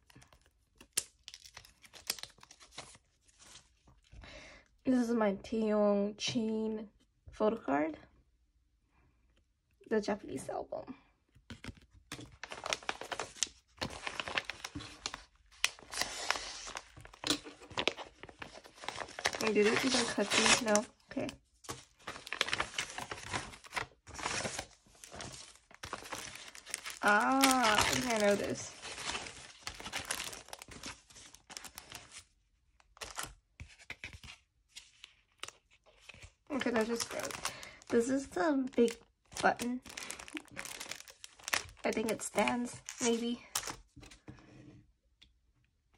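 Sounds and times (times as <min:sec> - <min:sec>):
stiff paper crinkling and tearing: 0:00.0 - 0:03.8, 0:11.5 - 0:32.3, 0:32.9 - 0:44.2.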